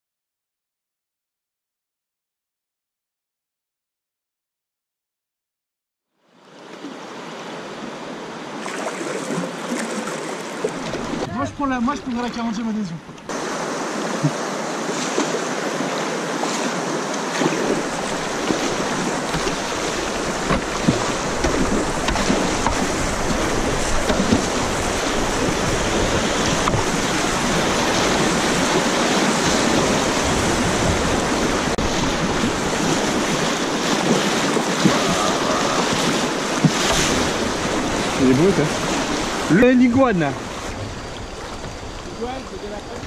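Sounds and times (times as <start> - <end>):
rushing whitewater: 6.4 - 43.0
paddle splashes and knocks: 8.5 - 43.0
wind rumble on microphone: 17.5 - 43.0.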